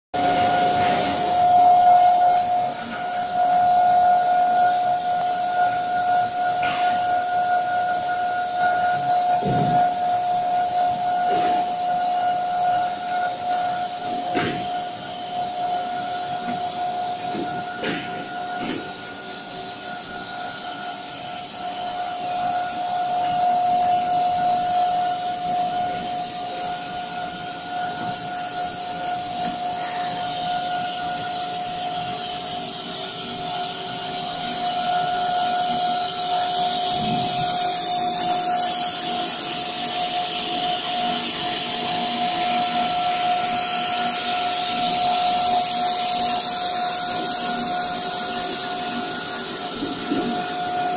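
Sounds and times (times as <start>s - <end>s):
machine drone with whine: 0.2s - 50.9s.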